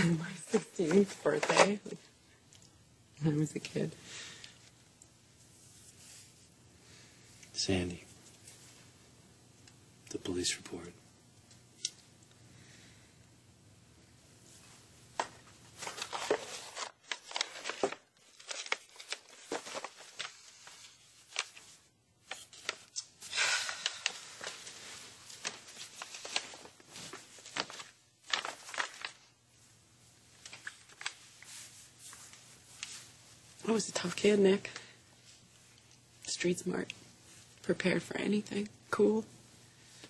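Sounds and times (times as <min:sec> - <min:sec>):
paper and fabric rustling: 0:00.0 - 0:02.1, 0:05.4 - 0:06.6, 0:14.4 - 0:35.8.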